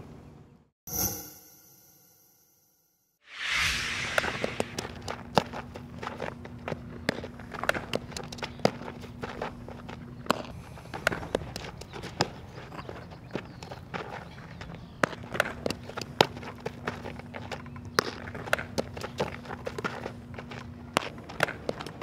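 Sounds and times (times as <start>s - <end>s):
burst of rushing noise: 3.3s - 4.8s.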